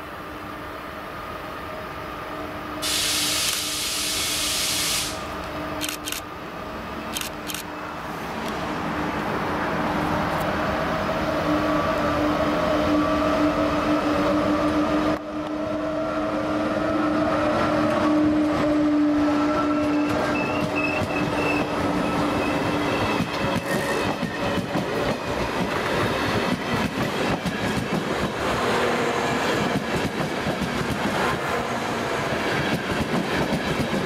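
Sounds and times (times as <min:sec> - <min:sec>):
electric locomotive humming whine: 0:00.0 - 0:34.0
brief hiss: 0:02.8 - 0:05.4.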